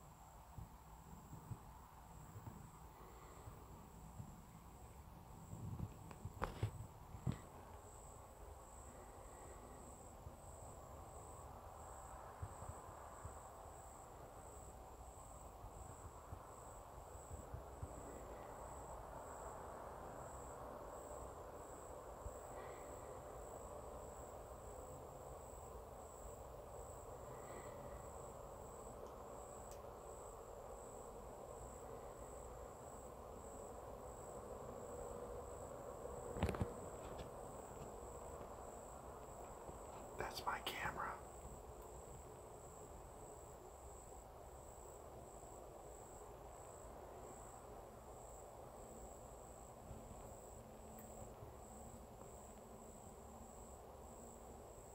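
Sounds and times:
cricket trilling: 0.0s - 54.9s
faint steady hiss: 0.0s - 54.9s.

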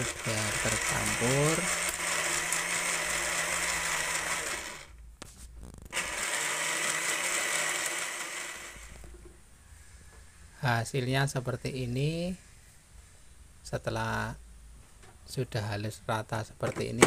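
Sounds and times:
blender running: 0.0s - 5.0s, 6.0s - 9.1s
blender click: 0.8s - 4.7s.

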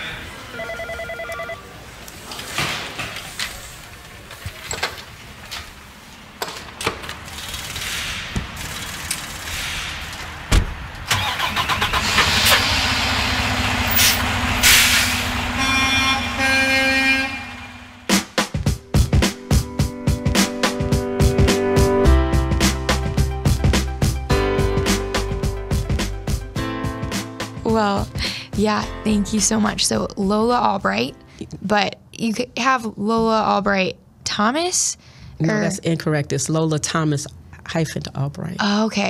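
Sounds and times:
truck engine starting and running: 6.4s - 18.2s
intro music: 12.4s - 31.0s.

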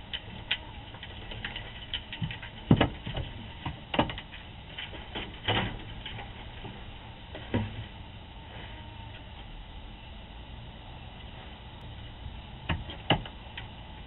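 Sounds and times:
raccoon scrabbling in plastic boxes: 0.1s - 6.8s, 12.7s - 13.4s.

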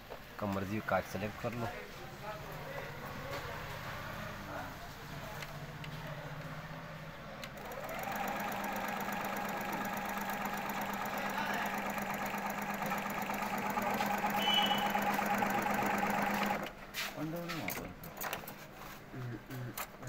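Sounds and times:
sewing machine stitching: 7.4s - 16.8s.

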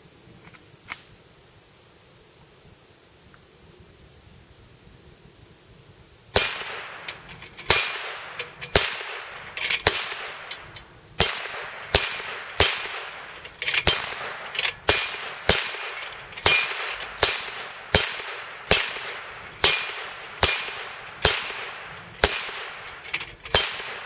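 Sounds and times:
rifle shots: 6.4s - 24.0s
steel gong plate clanging: 6.4s - 24.0s.

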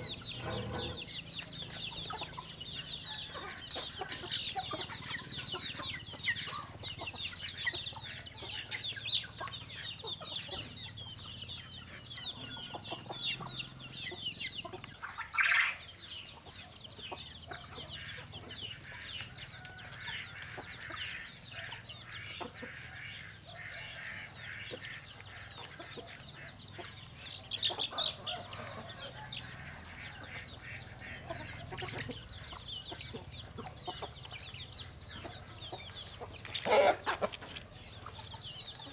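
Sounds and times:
chickens calling: 0.0s - 38.9s
chicken squawk: 36.5s - 37.4s.

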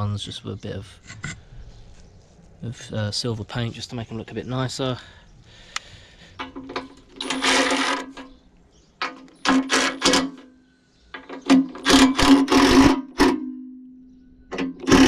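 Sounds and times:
impact driver hammering: 11.4s - 13.7s, 14.5s - 15.0s.

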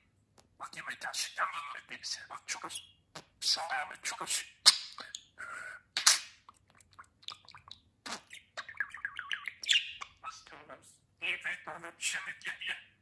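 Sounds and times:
budgerigar chattering: 8.1s - 12.8s.

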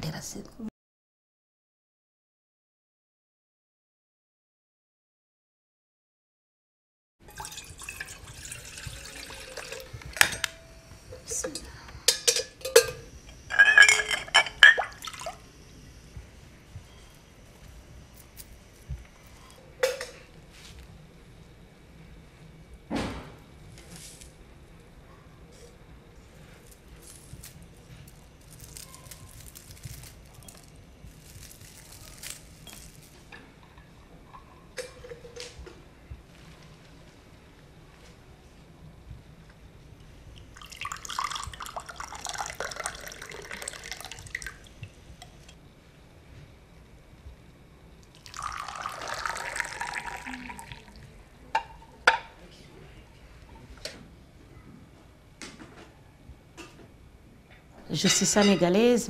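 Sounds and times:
water pouring into steel pot: 7.2s - 10.5s, 40.6s - 44.7s, 48.1s - 51.1s
low steady hum: 7.2s - 59.0s
glass and dishes clinking: 7.3s - 15.2s, 58.0s - 59.0s
water sloshing in glass bowl: 12.6s - 15.4s
dry herbs crackling and rustling: 26.2s - 33.3s.

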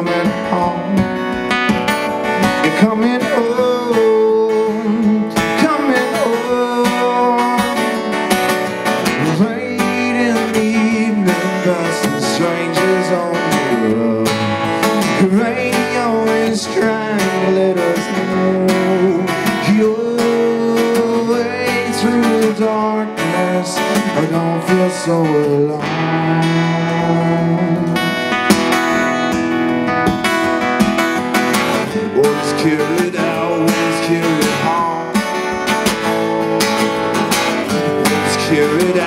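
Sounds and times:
person singing wordless vocal: 0.0s - 1.3s, 2.5s - 8.0s, 9.1s - 28.2s, 31.9s - 35.3s, 37.7s - 39.0s
acoustic guitar strumming: 0.0s - 39.0s.

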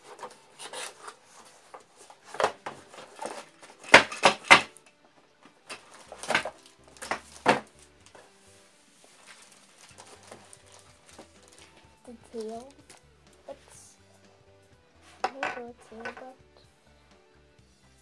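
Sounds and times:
plastic pieces rattling in box: 0.0s - 4.8s, 5.6s - 7.8s, 9.2s - 13.0s
plastic bag crinkling: 5.6s - 8.3s, 9.0s - 13.0s.

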